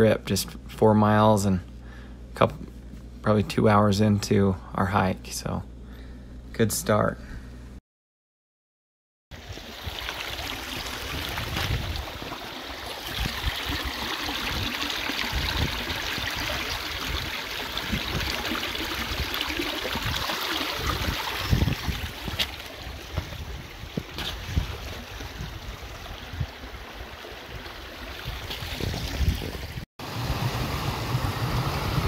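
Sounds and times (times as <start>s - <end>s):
low thumps against microphone: 21.0s - 25.4s.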